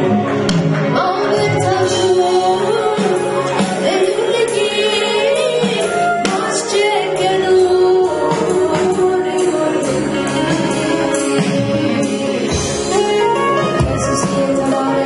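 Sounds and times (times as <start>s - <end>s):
band with drums: 0.0s - 15.0s
woman singing into a microphone: 0.8s - 15.0s.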